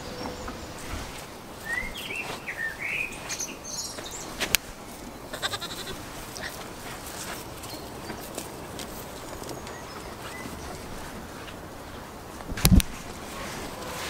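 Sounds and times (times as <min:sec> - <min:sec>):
goat bleating: 0:05.3 - 0:06.6.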